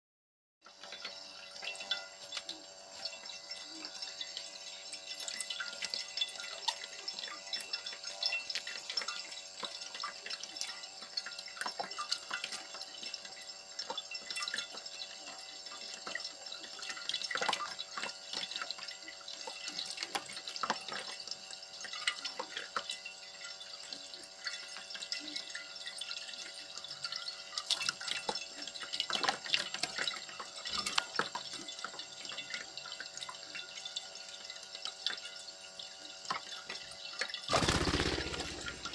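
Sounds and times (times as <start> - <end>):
tap water running onto plate: 0.7 - 38.9
bird splashing in water: 37.5 - 38.9
bird wing-shaking: 37.5 - 38.9.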